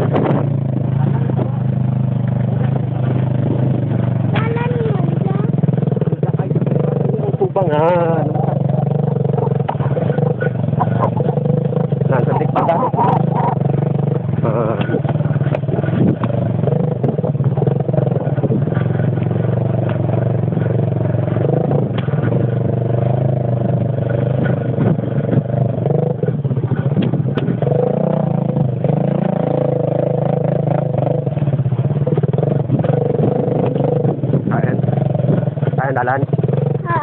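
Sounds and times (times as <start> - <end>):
motorcycle engine running: 0.0 - 37.0
bike knocks and rattles: 8.5 - 37.0.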